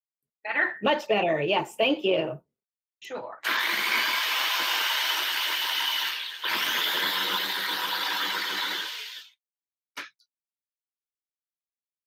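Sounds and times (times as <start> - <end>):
food processor motor whirring: 3.4 - 9.4.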